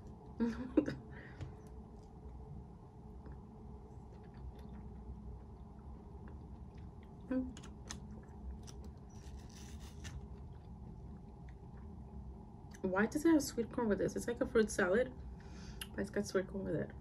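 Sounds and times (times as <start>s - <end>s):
low room hum: 0.0s - 17.0s
person chewing food: 3.2s - 12.8s
hissy crunch: 8.6s - 10.7s.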